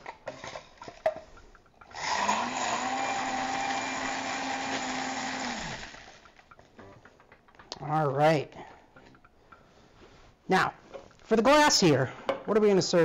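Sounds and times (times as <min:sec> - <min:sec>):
drink mixer motor spinning: 0:01.8 - 0:06.4.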